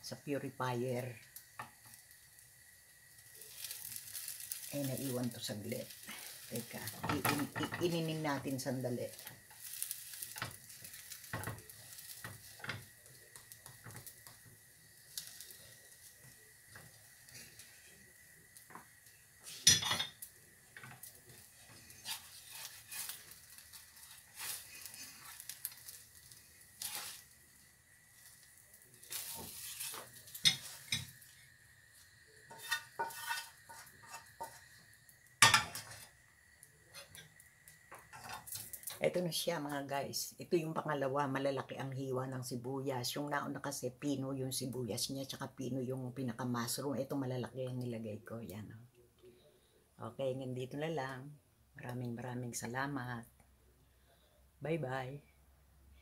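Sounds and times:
omelette sizzling: 0.0s - 48.2s
spatula scraping and tapping in a pan: 1.4s - 2.2s, 3.4s - 5.3s, 5.9s - 17.9s, 18.6s - 27.4s, 28.2s - 31.4s, 32.4s - 36.2s, 36.9s - 39.0s
plate clinking: 19.7s - 20.2s.

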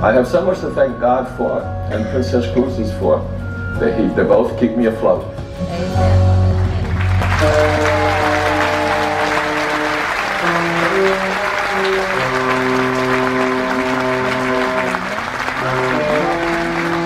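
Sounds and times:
slow music of held chords: 0.0s - 17.0s
audience applauding: 6.6s - 17.0s.

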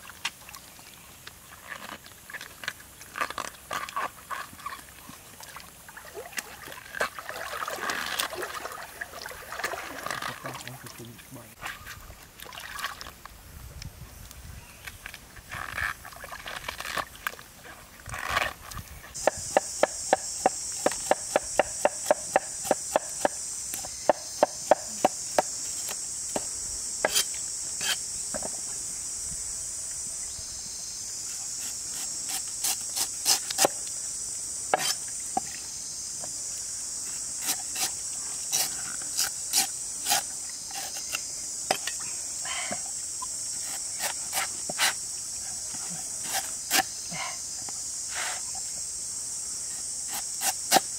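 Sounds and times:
high insect drone: 0.0s - 50.9s
cleaver chopping on wooden block: 19.2s - 25.5s.

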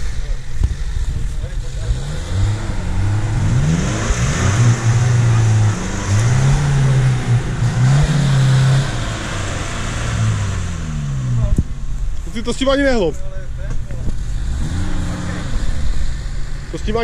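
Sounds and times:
off-road engine revving hard: 0.8s - 11.6s, 14.2s - 17.0s.

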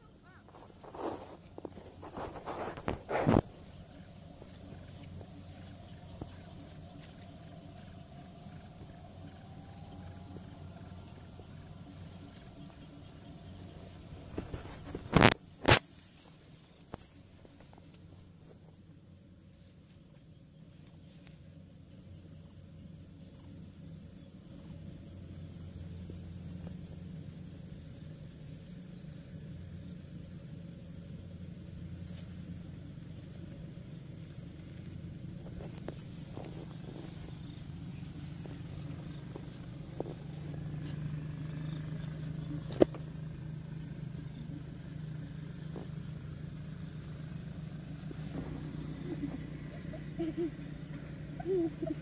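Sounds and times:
crickets trilling: 0.0s - 52.0s
low hum: 0.0s - 52.0s
faint clicks in soil: 14.3s - 18.1s, 35.5s - 37.2s, 42.6s - 43.1s.

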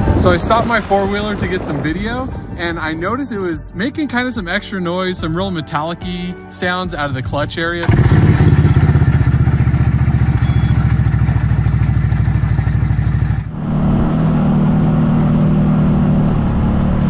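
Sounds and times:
engine running: 7.8s - 17.0s.

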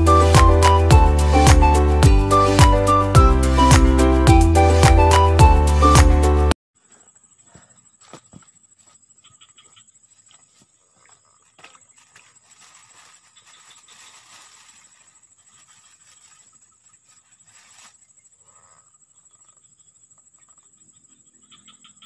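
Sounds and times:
pulsing insect trills: 6.8s - 22.0s
soft rustling: 10.3s - 18.1s.

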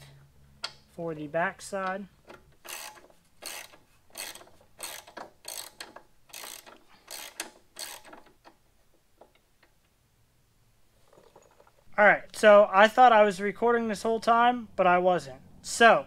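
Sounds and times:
socket ratchet clicking: 2.3s - 8.6s.

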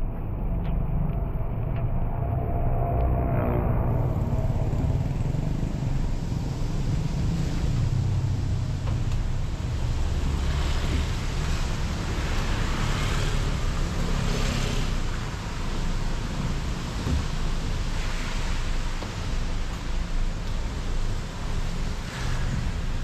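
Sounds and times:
car engine rumble: 3.3s - 23.0s
tyres hissing on wet road: 5.1s - 23.0s.

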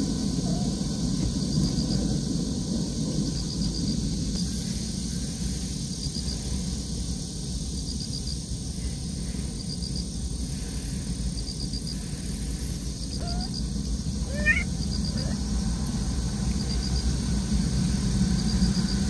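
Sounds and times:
insect chirping: 0.0s - 19.0s
low background rumble: 0.0s - 19.0s
cat mewing: 0.4s - 0.8s, 13.1s - 13.6s, 14.2s - 15.5s.

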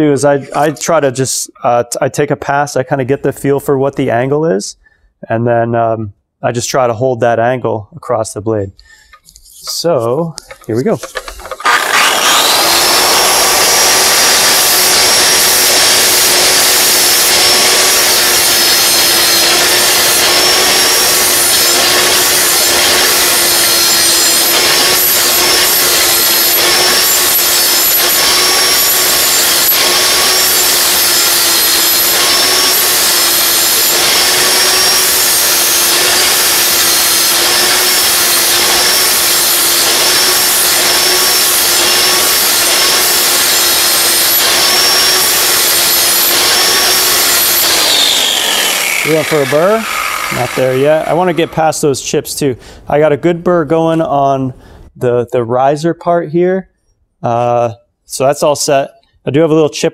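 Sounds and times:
disc grinding metal: 10.4s - 51.8s
angle grinder motor whine: 10.5s - 51.9s.

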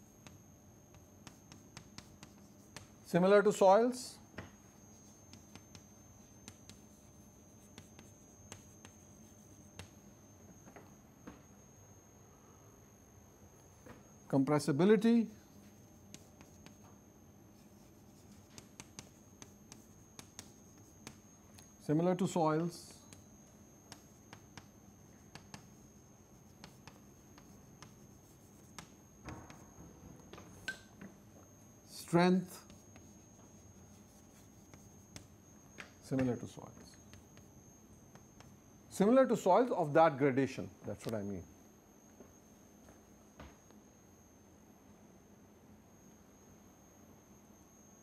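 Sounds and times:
chalk scratching on blackboard: 0.2s - 3.0s, 4.8s - 9.9s, 15.5s - 16.9s, 17.5s - 21.7s, 23.9s - 29.6s, 32.5s - 35.3s, 36.9s - 38.6s.

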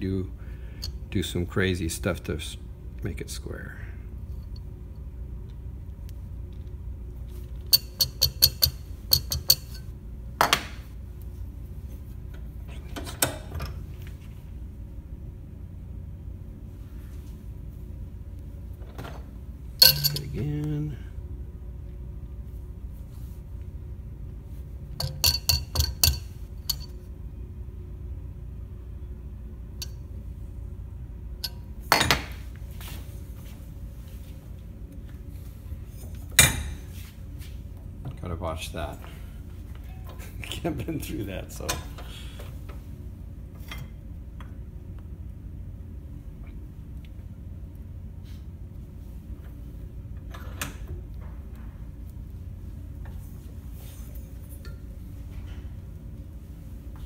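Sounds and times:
low steady hum: 0.0s - 57.0s
metal-on-metal taps ringing: 7.7s - 9.8s, 19.8s - 20.4s, 25.0s - 26.9s
metal clank in a vise: 19.8s - 20.4s.

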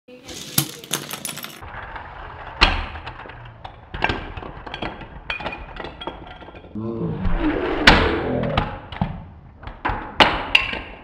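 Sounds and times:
toy car clattering on tile: 0.1s - 1.7s.

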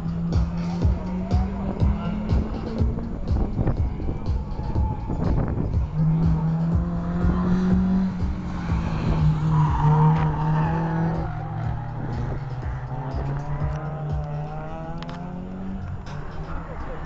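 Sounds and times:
race car engine passing: 0.0s - 17.0s.

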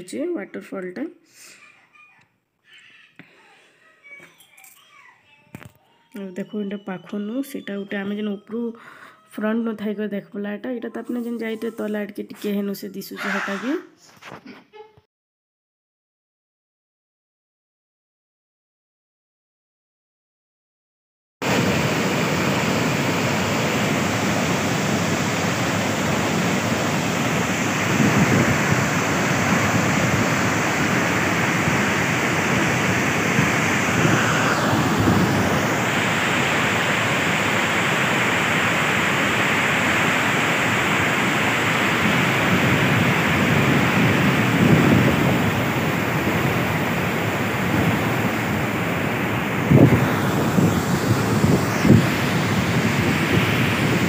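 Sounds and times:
waterfall rushing: 21.4s - 54.0s
wind buffeting microphone: 21.5s - 54.0s.

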